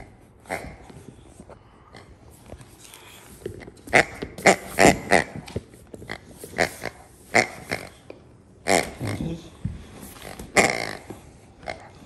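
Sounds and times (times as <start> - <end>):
rubber dog toy grunting: 0.0 - 1.2, 3.7 - 9.6, 10.2 - 12.0.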